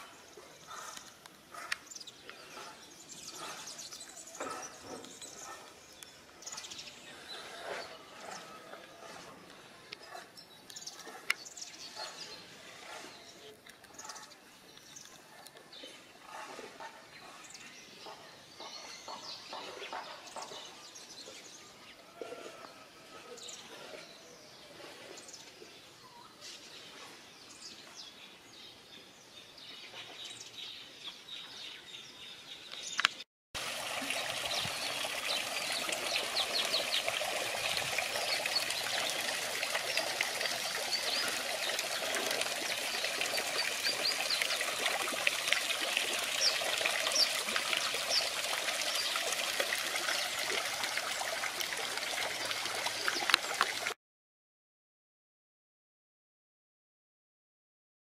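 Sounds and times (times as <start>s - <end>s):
small birds chirping: 0.0s - 21.6s, 34.4s - 49.4s
fountain water splashing: 33.6s - 54.0s.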